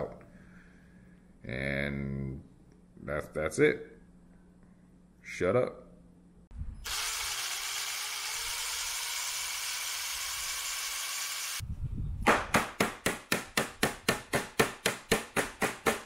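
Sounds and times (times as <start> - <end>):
cordless drill drilling metal: 6.8 - 11.6.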